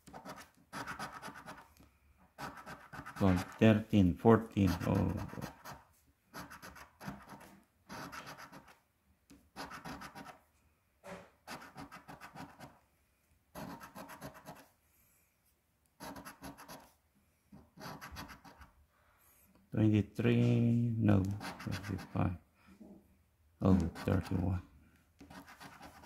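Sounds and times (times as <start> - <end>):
coin scratching lottery ticket: 0.0 - 1.6, 2.4 - 3.6, 4.6 - 5.8, 6.4 - 8.7, 9.6 - 10.4, 11.5 - 12.7, 13.6 - 14.6, 16.0 - 16.8, 17.8 - 18.6, 21.3 - 22.3, 25.3 - 26.0.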